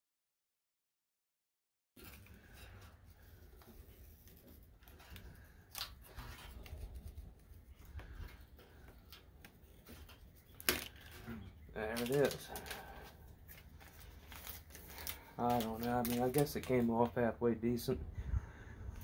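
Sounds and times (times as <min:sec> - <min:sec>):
decal peeling crackling: 0:02.1 - 0:17.1.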